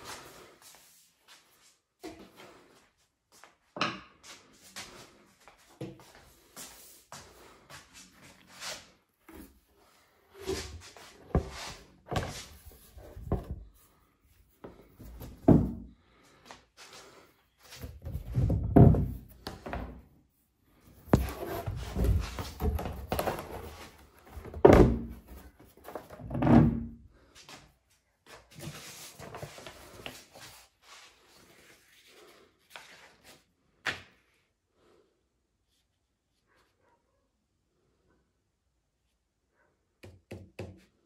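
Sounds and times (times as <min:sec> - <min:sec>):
furniture boards knocking and scraping: 0:15.0 - 0:15.9, 0:17.8 - 0:20.0, 0:21.1 - 0:25.4.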